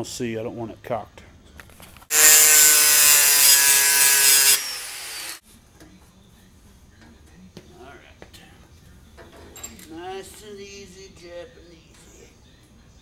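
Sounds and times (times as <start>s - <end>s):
electric power tool running: 2.1s - 5.4s.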